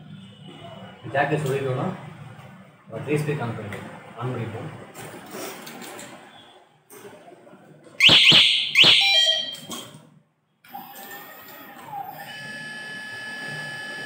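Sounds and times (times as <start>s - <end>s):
alarm siren chirps: 8.0s - 9.8s.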